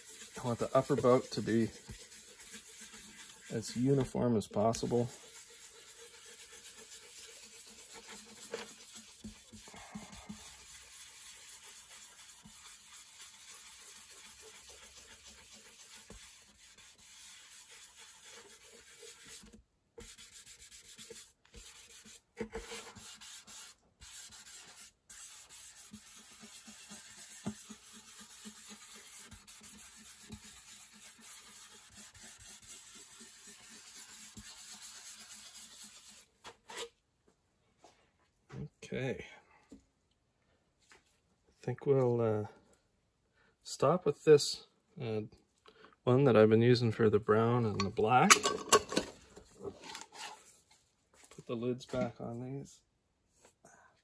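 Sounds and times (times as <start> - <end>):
cloth pad rubbing wood: 0.0 - 36.4.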